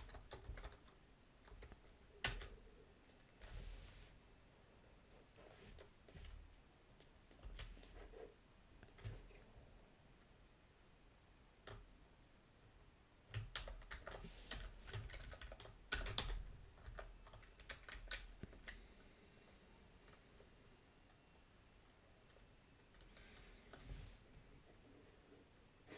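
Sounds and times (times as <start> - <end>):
typing on a keyboard: 0.0 - 2.6, 7.0 - 8.0, 8.8 - 9.2, 11.6 - 11.9, 13.3 - 18.8, 21.9 - 23.9.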